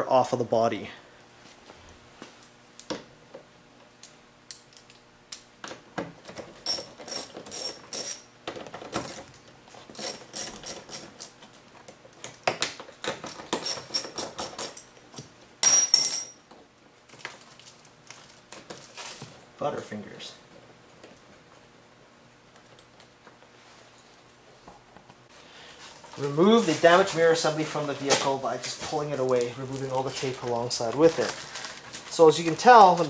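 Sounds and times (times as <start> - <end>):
small metal clinks: 15.6 - 16.4.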